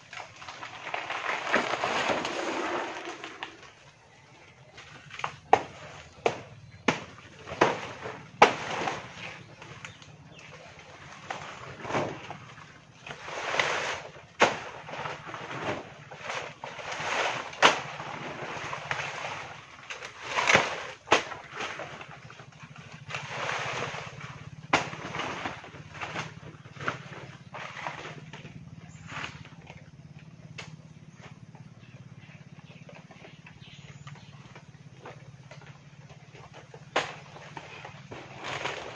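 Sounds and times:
banana leaves rustling: 0.0s - 38.9s
sharp chopping cracks: 5.3s - 9.3s, 14.4s - 14.8s, 24.7s - 26.3s, 36.9s - 37.4s.

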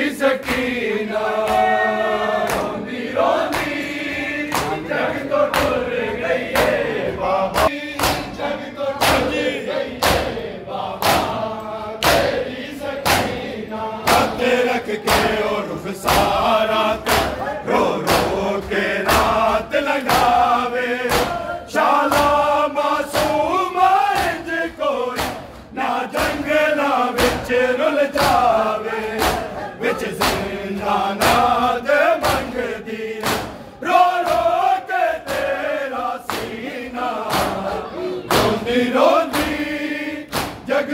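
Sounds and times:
men chanting in unison: 0.0s - 40.9s
hands slapping chests: 2.4s - 2.8s, 3.4s - 5.9s, 6.6s - 6.8s, 7.5s - 8.4s, 9.0s - 9.4s, 10.0s - 10.4s, 11.0s - 11.4s, 12.0s - 12.4s, 13.0s - 14.4s, 15.0s - 21.5s, 22.1s - 22.5s, 23.1s - 26.5s, 27.2s - 27.6s, 28.2s - 31.6s, 32.2s - 32.6s, 33.2s - 34.6s, 36.3s - 36.6s, 37.2s - 37.7s, 39.2s - 39.7s, 40.3s - 40.7s.

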